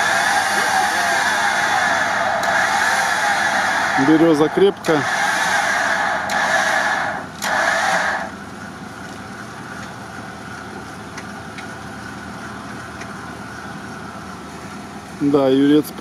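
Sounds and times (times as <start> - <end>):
electric winch running under load: 0.0 - 9.2
truck engine idling: 0.0 - 16.0.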